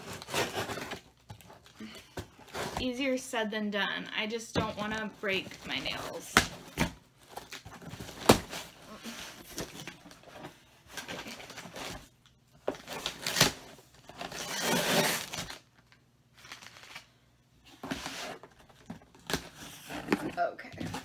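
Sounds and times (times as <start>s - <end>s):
cardboard rustling and tearing: 0.0s - 1.7s, 12.7s - 15.6s.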